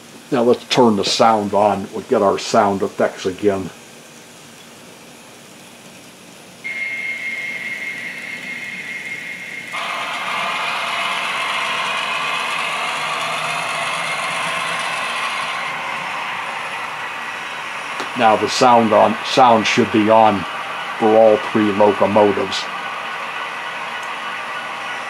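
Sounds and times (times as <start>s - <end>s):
high tone with hiss: 0.0s - 25.0s
locomotive engine sound effects: 6.6s - 25.0s.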